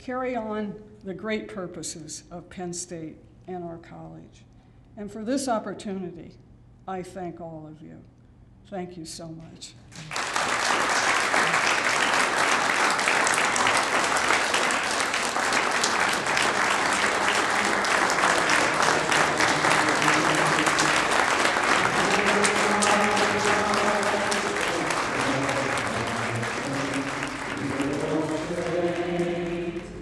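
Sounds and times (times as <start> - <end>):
audience applause: 10.0 - 30.0.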